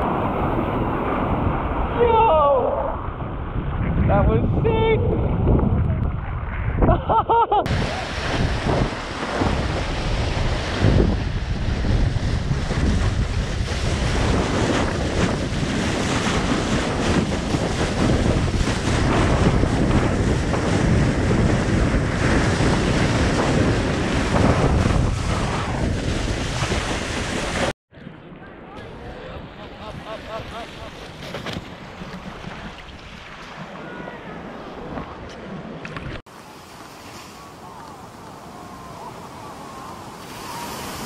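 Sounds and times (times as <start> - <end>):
ocean water washing: 0.0 - 5.5, 7.6 - 27.8, 28.8 - 41.0
wind buffeting microphone: 0.0 - 27.7.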